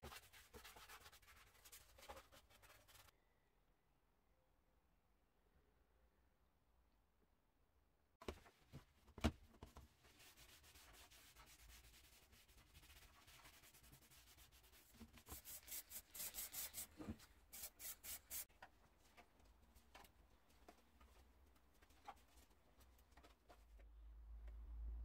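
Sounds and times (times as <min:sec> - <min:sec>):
wipe rubbing on painted metal: 0:10.1 - 0:18.5.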